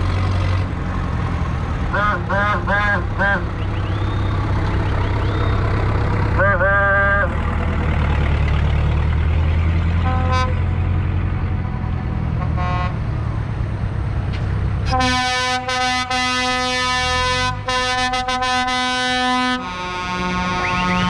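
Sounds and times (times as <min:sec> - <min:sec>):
tractor engines rumbling: 0:00.0 - 0:21.0
horn toots: 0:01.9 - 0:03.5, 0:10.0 - 0:10.7, 0:12.4 - 0:13.0, 0:14.9 - 0:21.0
loud steady horn blast: 0:01.9 - 0:03.5, 0:06.4 - 0:07.3, 0:10.0 - 0:10.8, 0:12.4 - 0:13.1, 0:14.8 - 0:21.0.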